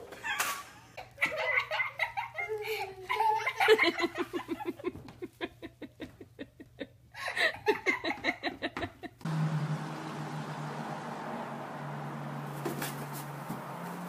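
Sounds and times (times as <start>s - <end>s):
person giggling: 0.1s - 9.2s.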